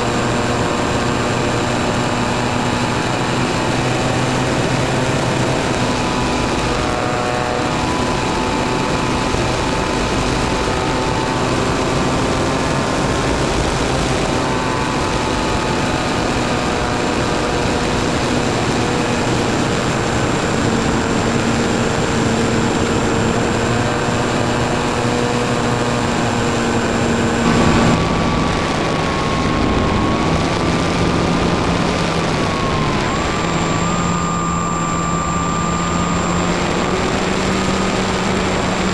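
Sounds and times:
small aircraft engine and propeller: 0.0s - 38.9s
rushing noise: 26.7s - 33.7s.

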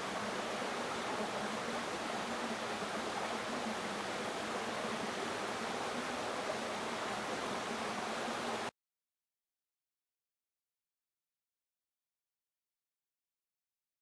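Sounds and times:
stream water rushing: 0.0s - 8.7s.

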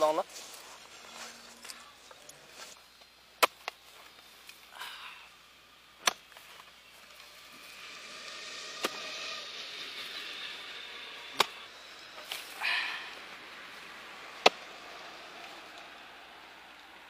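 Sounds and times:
steady hiss: 0.0s - 17.0s
hoe blade scraping through earth: 0.3s - 2.8s, 6.0s - 12.7s
hoe chopping into frozen soil: 6.0s - 6.4s.

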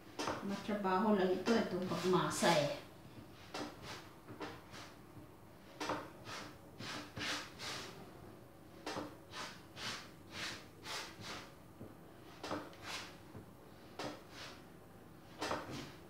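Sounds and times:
hands kneading dough: 0.1s - 7.9s.

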